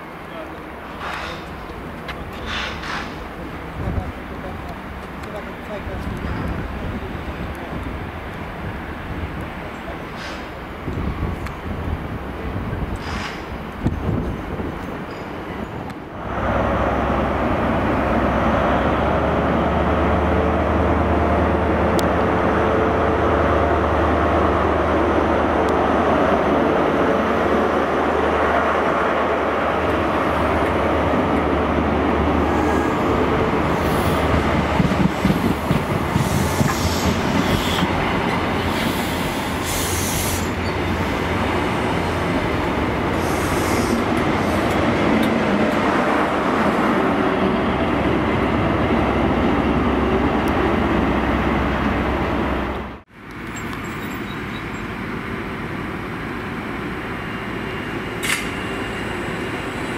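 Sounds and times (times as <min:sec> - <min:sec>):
train wheels clattering on track: 0:00.3 - 0:11.7, 0:12.6 - 0:16.0, 0:32.3 - 0:47.2, 0:56.6 - 0:59.9
diesel engine humming: 0:16.2 - 0:59.9.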